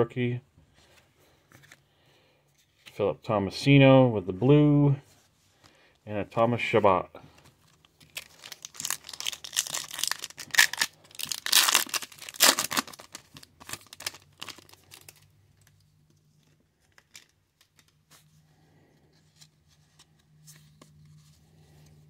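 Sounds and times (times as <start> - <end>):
foil wrapper tearing and crinkling: 8.0 - 15.7.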